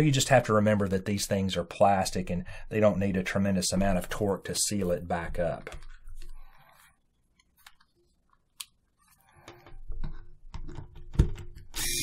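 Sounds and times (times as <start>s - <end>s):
cordless screwdriver running: 11.8s - 12.0s.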